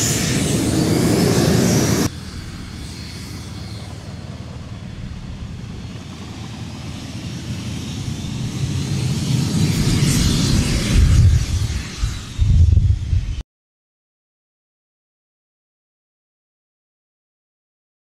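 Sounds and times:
low rumble of aircraft engines: 0.0 - 13.4
radial aircraft engine running: 0.0 - 13.4.

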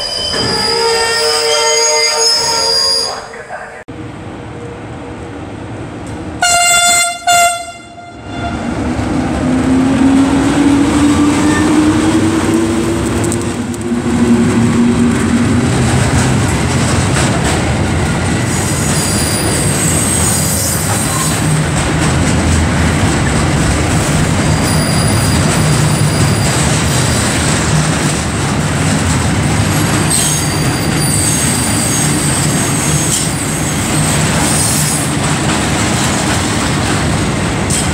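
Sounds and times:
high-pitched wheel squeal: 0.0 - 3.3, 18.6 - 21.4, 24.6 - 26.5
locomotive horn blasts: 0.4 - 3.1, 6.4 - 8.7
train wagon wheels rumbling: 8.7 - 37.9.

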